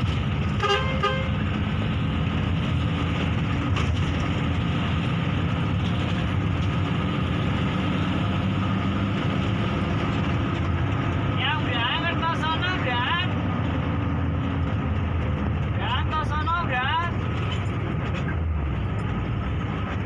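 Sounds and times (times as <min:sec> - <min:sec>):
bus diesel engine running: 0:00.0 - 0:20.0
horn short toots: 0:00.6 - 0:01.4.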